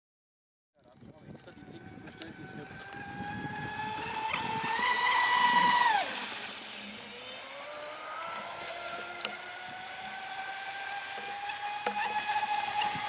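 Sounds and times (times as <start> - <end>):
electric boat motor whining: 1.2 - 13.0.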